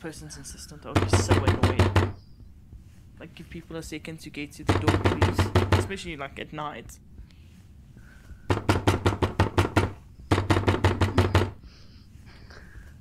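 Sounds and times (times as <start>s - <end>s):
rapid knocking on a door: 0.9s - 2.2s, 4.6s - 6.1s, 8.5s - 11.6s.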